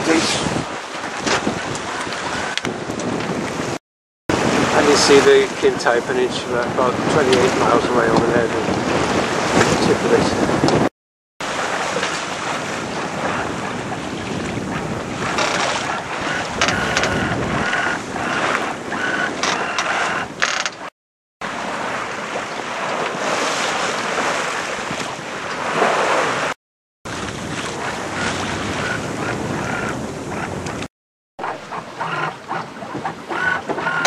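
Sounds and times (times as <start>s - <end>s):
wind buffeting microphone: 0.0s - 10.9s, 11.8s - 20.4s, 27.1s - 33.9s
waves rushing along hull: 0.0s - 34.0s.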